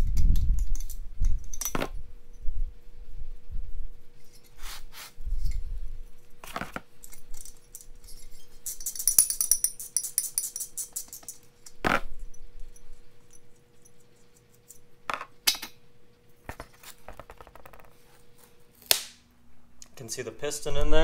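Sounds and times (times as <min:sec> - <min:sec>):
metal hardware jingling: 0:07.0 - 0:11.7.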